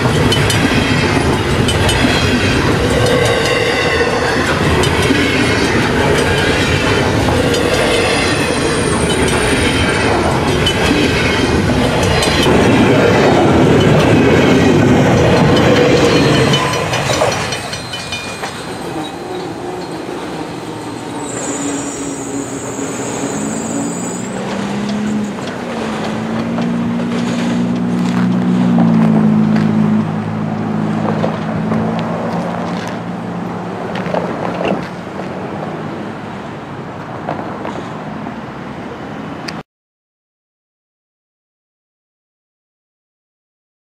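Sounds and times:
train wheels rumbling: 0.0 - 38.0
diesel locomotive drone: 0.0 - 39.6
high squeal: 15.4 - 25.5.

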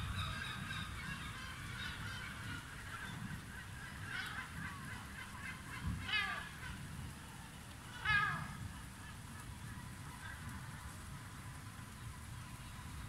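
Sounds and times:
animal calls: 7.9 - 8.8.

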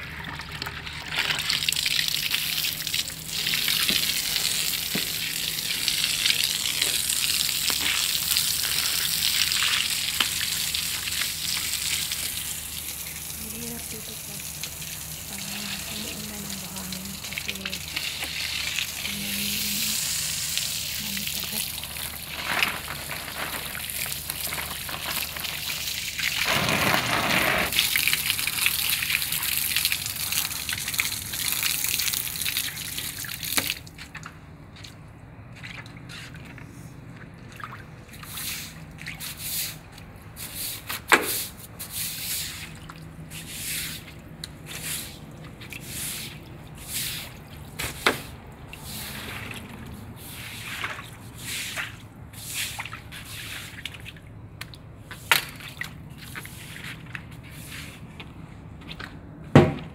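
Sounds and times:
hose water jet hissing on wall: 3.3 - 29.8
broom swishing on wet tiles: 15.3 - 28.0, 35.6 - 36.9, 38.1 - 54.2, 55.0 - 58.9.

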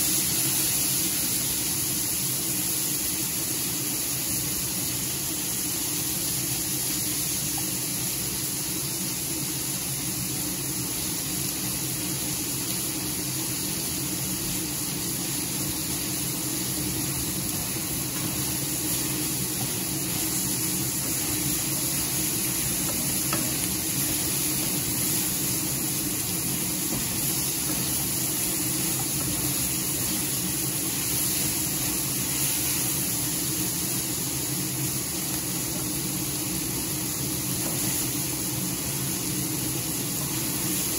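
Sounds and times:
chicken sizzling in a frying pan: 0.0 - 40.9
wooden spatula stirring: 16.7 - 32.7.

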